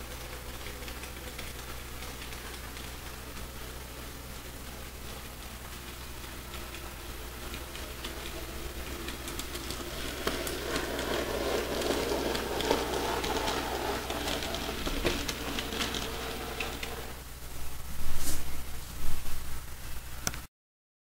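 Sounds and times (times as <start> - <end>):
wheels clicking over rails: 0.0 - 17.4
small motor whirring: 9.2 - 17.2.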